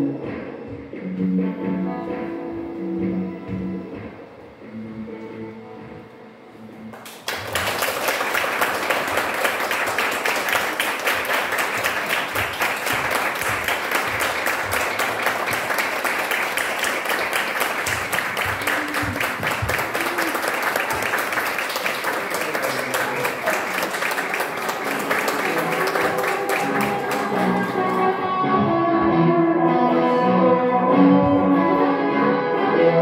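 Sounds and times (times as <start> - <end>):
audience applauding: 6.9 - 28.3.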